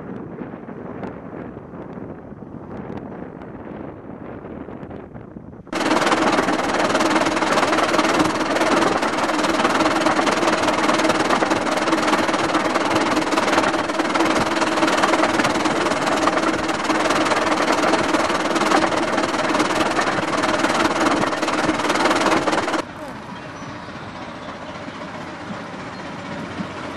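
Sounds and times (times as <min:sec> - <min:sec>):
steam locomotive running: 0:05.8 - 0:26.9.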